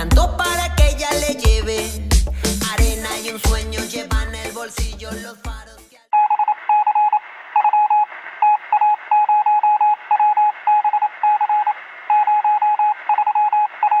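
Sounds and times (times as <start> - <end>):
morse code beeping tone: 6.2 - 14.0.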